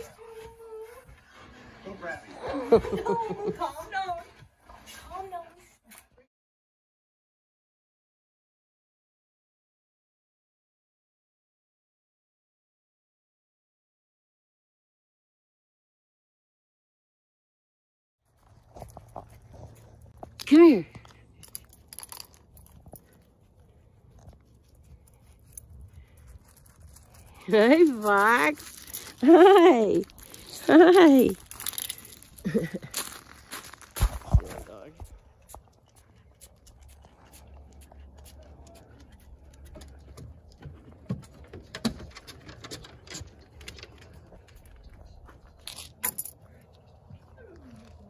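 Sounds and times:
dog paws on gravel: 18.3s - 41.4s.

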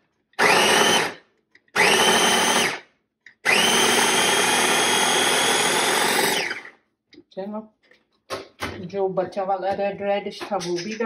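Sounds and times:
food chopper motor whining: 0.4s - 6.8s.

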